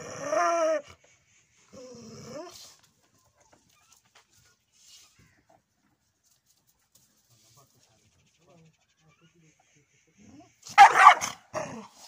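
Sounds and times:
dog howling bark: 10.8s - 11.4s.

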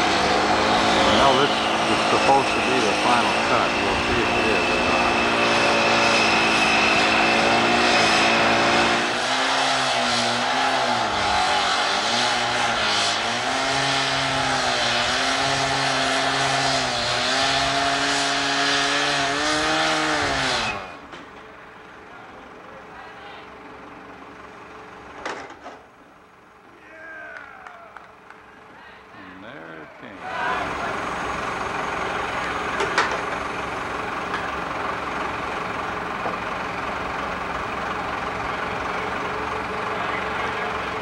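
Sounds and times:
petrol cut-off saw cutting metal: 0.0s - 21.0s.

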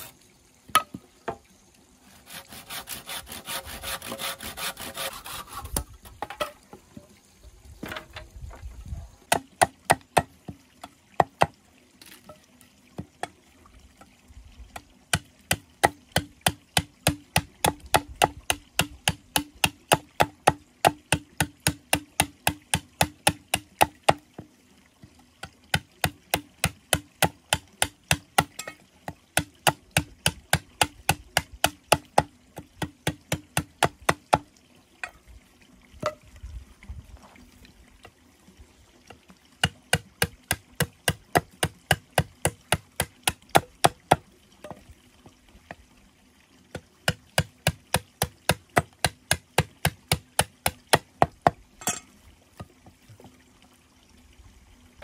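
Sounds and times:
blade chopping bamboo: 2.2s - 6.6s, 15.1s - 24.2s, 25.7s - 28.8s, 29.4s - 34.4s, 39.6s - 44.2s, 47.1s - 51.6s.

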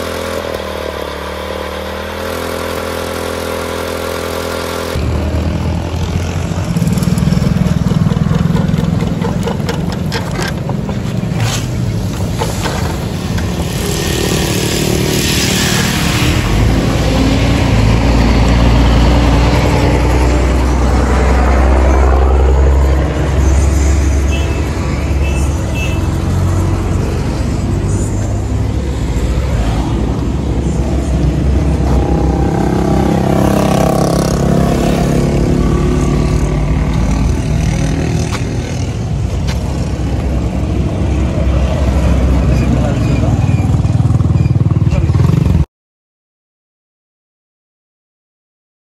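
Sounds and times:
core drill cutting asphalt: 0.0s - 5.0s, 12.0s - 16.2s.

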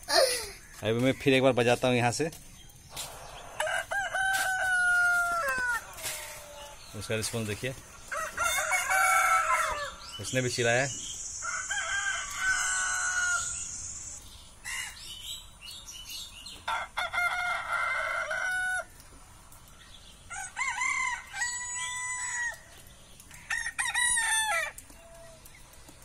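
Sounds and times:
rooster crowing: 3.5s - 6.9s, 8.1s - 10.0s, 11.4s - 13.7s, 16.7s - 18.9s, 20.3s - 22.6s
recorded rooster crow from phone: 3.6s - 6.8s, 8.1s - 10.0s, 11.4s - 13.6s, 16.7s - 18.9s, 20.3s - 22.6s, 23.5s - 24.8s.

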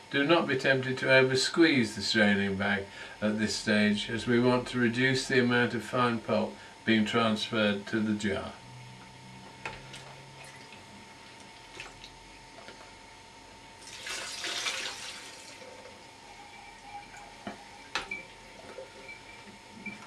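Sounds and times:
liquid pouring and splashing: 11.5s - 12.2s, 13.8s - 16.0s.

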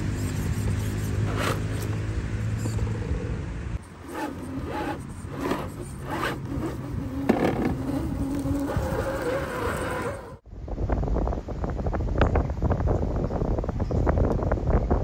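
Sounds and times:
toy car motor whining: 0.0s - 2.0s, 3.8s - 10.4s
tyres scrabbling against rock: 4.0s - 10.3s.

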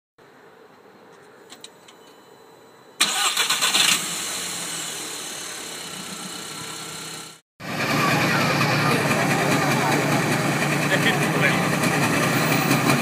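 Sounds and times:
car engine starting and idling: 3.0s - 13.0s.

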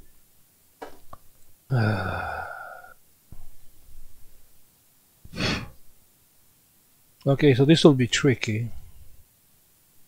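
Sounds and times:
man sighing: 1.7s - 3.0s.

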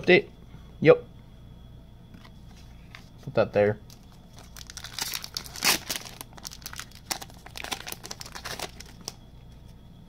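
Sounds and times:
wrapper crinkling and tearing: 3.9s - 9.2s.

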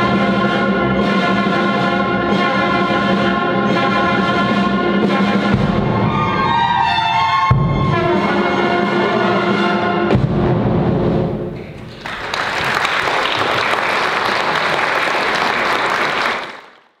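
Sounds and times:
audience applauding: 11.8s - 17.0s.

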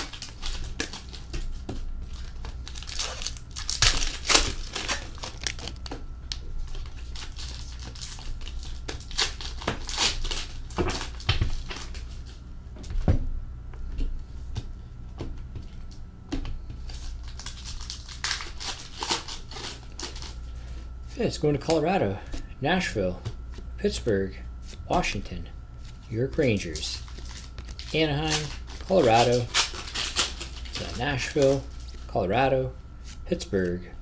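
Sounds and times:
trading cards rustling: 0.0s - 6.0s, 16.8s - 21.8s, 25.8s - 32.1s
card pack wrappers crinkling: 0.0s - 12.3s, 16.9s - 20.5s, 25.8s - 32.1s.

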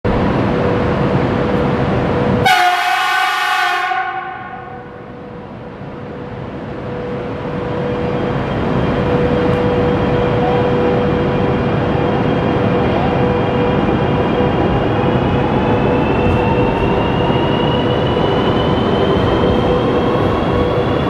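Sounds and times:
train horn blast: 2.4s - 5.0s.

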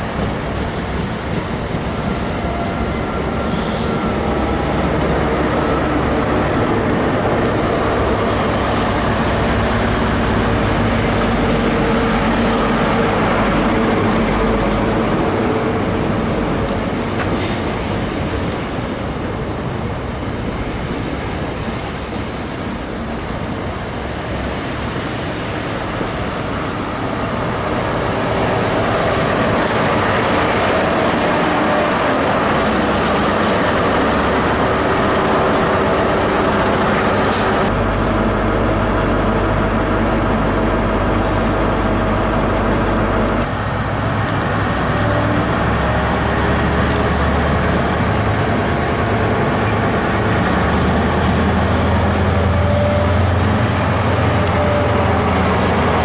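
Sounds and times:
train wheels rumbling on rails: 0.0s - 56.0s
diesel engine passing close: 23.3s - 56.0s.

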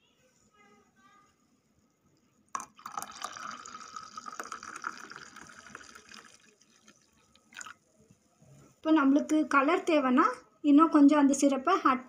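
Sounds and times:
milk pouring into glass: 2.6s - 7.8s.

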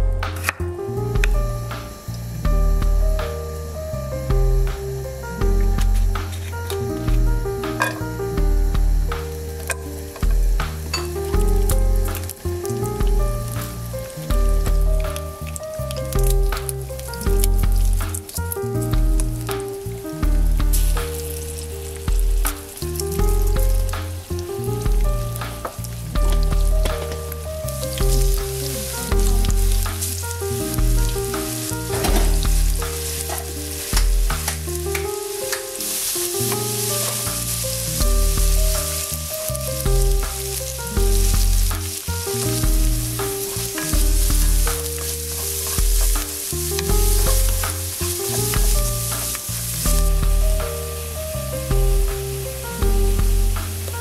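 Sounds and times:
background music with bass pulse: 0.0s - 54.0s
garlic sizzling in oil: 0.0s - 54.0s
wooden spatula stirring: 20.7s - 50.4s.

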